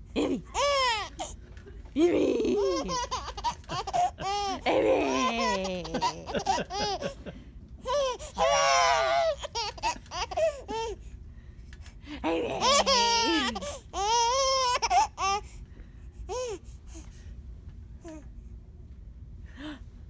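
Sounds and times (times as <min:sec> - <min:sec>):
baby giggling and laughing: 0:02.4 - 0:11.0, 0:12.4 - 0:15.5.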